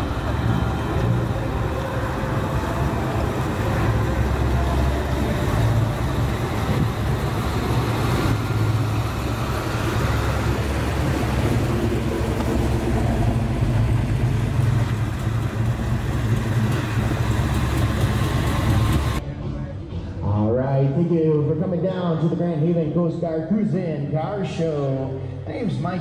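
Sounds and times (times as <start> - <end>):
car engines running at low speed: 0.0 - 19.2.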